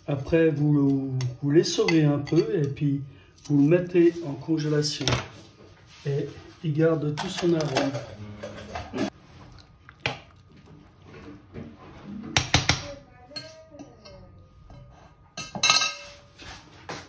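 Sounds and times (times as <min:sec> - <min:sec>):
utensil clinking against cookware: 0:12.4 - 0:16.3.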